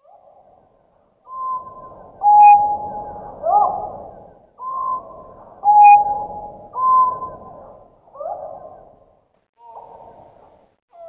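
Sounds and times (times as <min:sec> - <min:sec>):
slowed whistled bird call: 0:01.3 - 0:04.0, 0:04.6 - 0:07.5.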